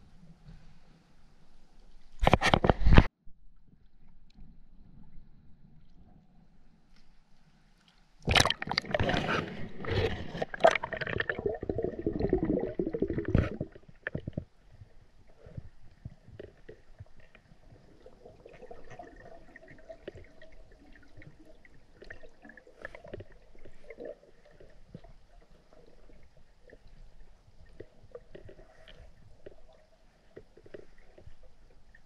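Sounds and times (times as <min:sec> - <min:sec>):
underwater gurgling and sloshing: 0:03.7 - 0:32.0
small clicks and soft knocks: 0:13.3 - 0:17.9, 0:24.4 - 0:32.0.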